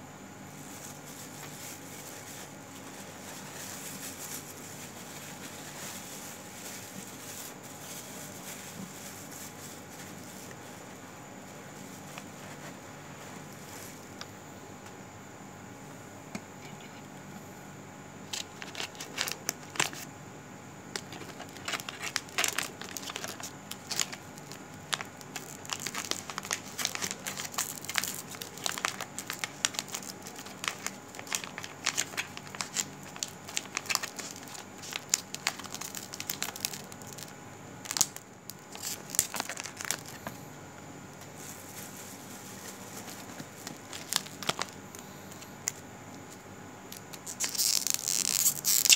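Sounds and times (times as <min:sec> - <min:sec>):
steady low hum: 0:00.0 - 0:48.9
crackling and crinkling clicks: 0:18.3 - 0:20.1, 0:20.9 - 0:40.4, 0:41.2 - 0:48.9.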